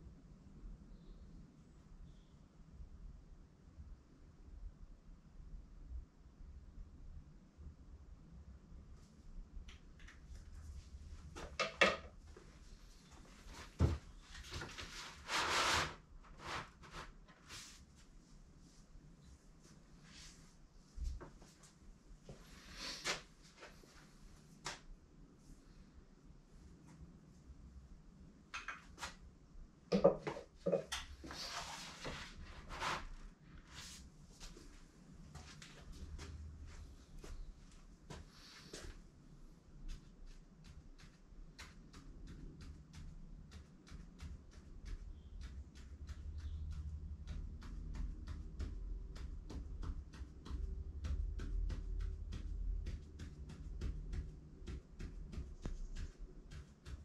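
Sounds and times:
low steady hum: 0:17.3 - 0:57.0.

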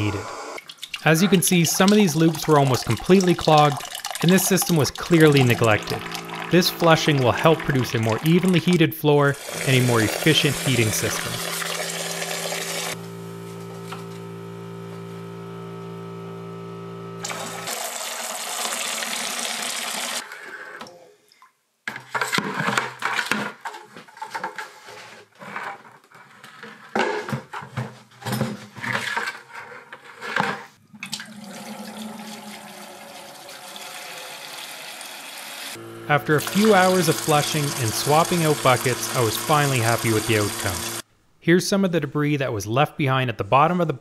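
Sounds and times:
steady hum: 0:00.0 - 0:17.7, 0:35.8 - 0:41.2
water splashing into plastic bucket: 0:00.6 - 0:08.8.

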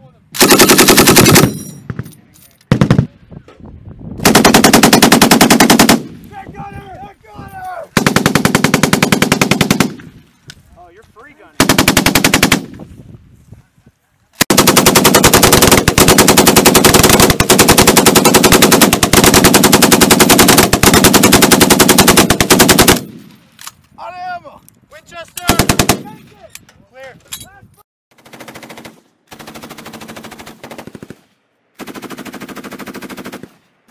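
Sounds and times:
machine gun firing bursts: 0:00.4 - 0:01.6, 0:04.2 - 0:06.1, 0:08.0 - 0:10.0, 0:11.6 - 0:12.7, 0:14.4 - 0:23.2, 0:25.5 - 0:26.1, 0:28.2 - 0:31.2, 0:31.8 - 0:33.6.

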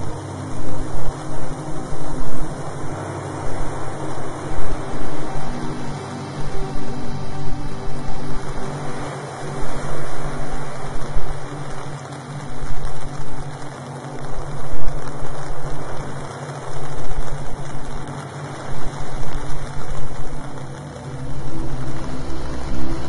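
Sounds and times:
loud hissing wash: 0:00.0 - 0:23.0.

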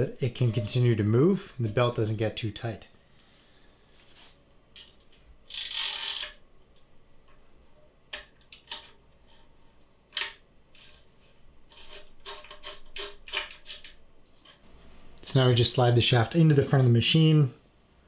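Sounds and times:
rustling scrape: 0:03.9 - 0:04.4
small metal parts clicking: 0:04.8 - 0:06.4.

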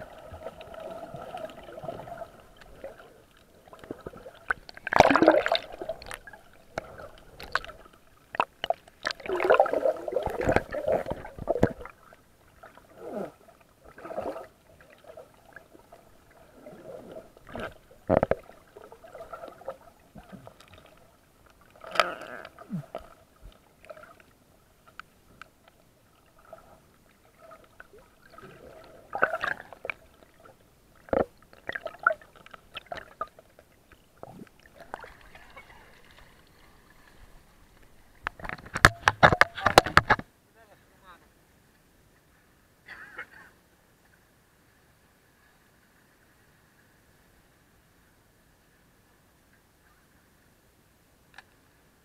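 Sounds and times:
water sloshing and gurgling: 0:00.0 - 0:40.3
camera rubbing and knocking: 0:38.2 - 0:40.3.

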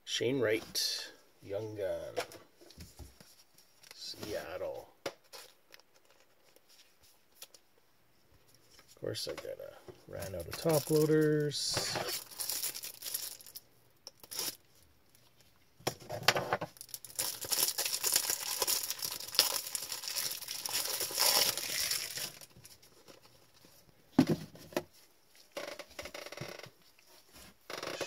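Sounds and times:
plastic packaging crinkling: 0:10.2 - 0:15.2, 0:16.7 - 0:23.5.

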